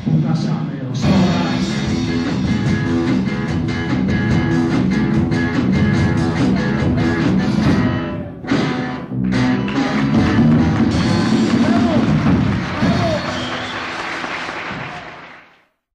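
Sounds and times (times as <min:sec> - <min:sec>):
rock band playing guitar and drums: 0:00.0 - 0:15.1.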